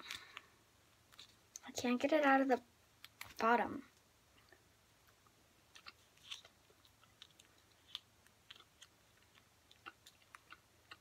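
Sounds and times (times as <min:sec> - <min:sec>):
mouth chewing candy: 0:04.4 - 0:11.0.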